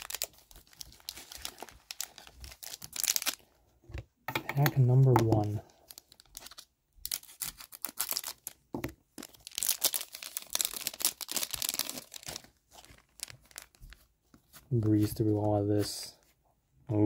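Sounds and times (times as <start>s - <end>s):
plastic wrapper crinkling: 0.0s - 3.5s, 5.1s - 15.4s
scissors cutting wrapper: 5.4s - 8.6s, 9.2s - 13.8s.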